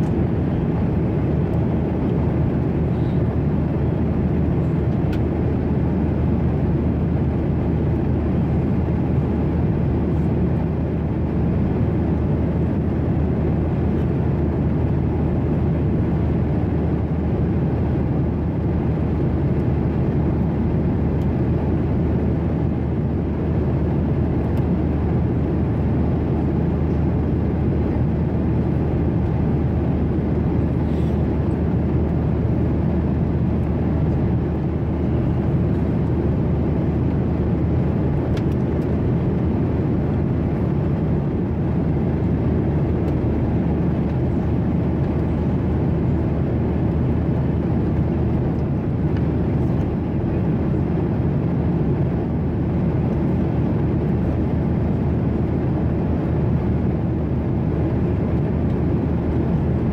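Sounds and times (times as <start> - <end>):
airplane engine drone in cabin: 0.0 - 59.9.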